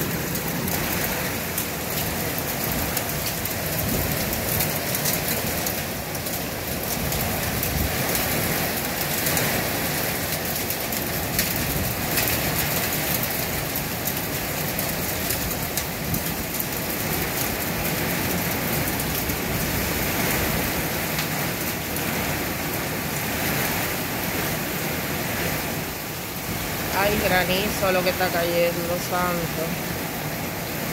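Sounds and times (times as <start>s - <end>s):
hailstones ticking: 0.0s - 23.2s
rain rushing hiss: 0.0s - 30.9s.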